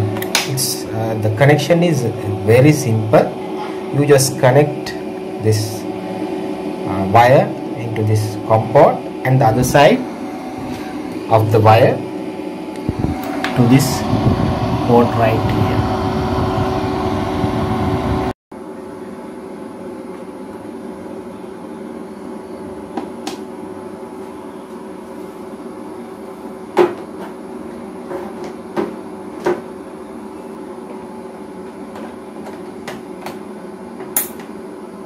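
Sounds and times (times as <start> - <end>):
faint high whine: 0.0 - 20.4
inverter humming: 0.0 - 35.0.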